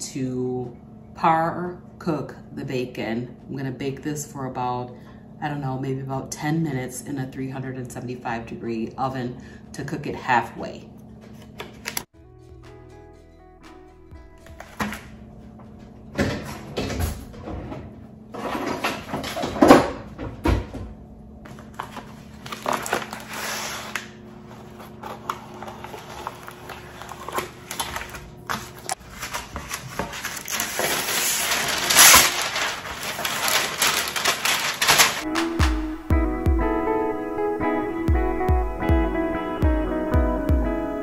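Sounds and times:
plastic packaging crinkling: 21.5 - 35.6.

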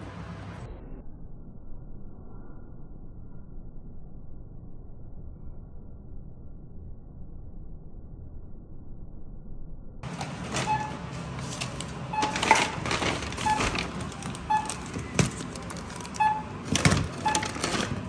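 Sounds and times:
shopping bag rustling: 10.0 - 18.0
barcode scanner beeps: 10.5 - 11.3, 12.0 - 18.0.

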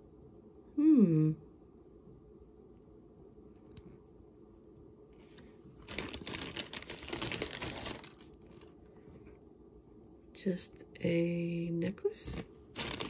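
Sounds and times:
bag crinkling and rustling: 5.2 - 8.8, 12.3 - 13.0.

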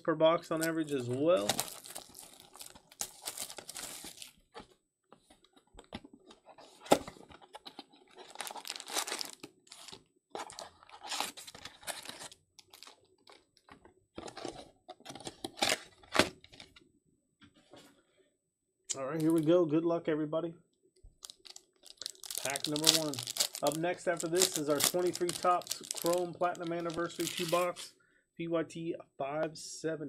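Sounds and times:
plastic shrink wrap tearing: 1.4 - 4.3, 8.3 - 10.0, 21.2 - 27.8
cardboard box opening: 6.3 - 12.3.

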